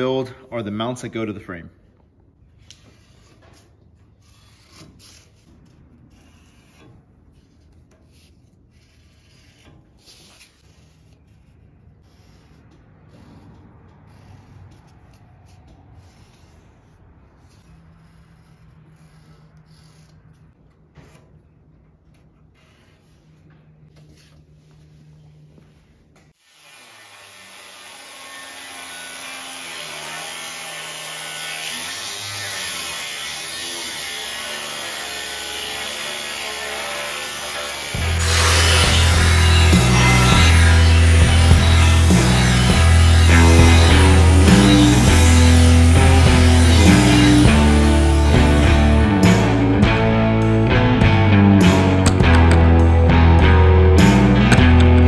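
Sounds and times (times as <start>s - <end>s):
marker scratching on cardboard edge: 2.6s - 20.4s, 22.5s - 23.4s
angle grinder cutting steel: 26.4s - 55.0s.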